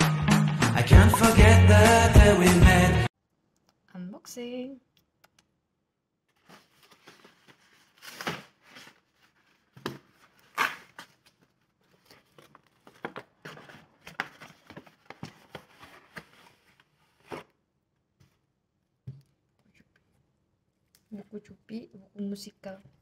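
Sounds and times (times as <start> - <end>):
cardboard scraping and rustling: 6.4 - 17.5.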